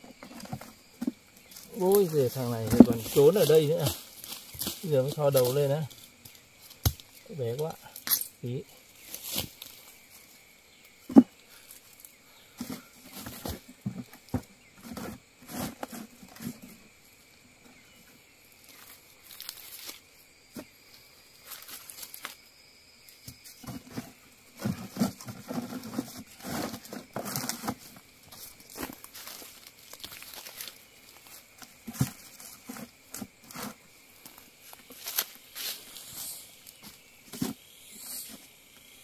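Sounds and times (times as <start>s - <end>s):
digging in soil and leaf litter: 0.2s - 10.5s, 18.5s - 22.5s, 23.1s - 39.0s.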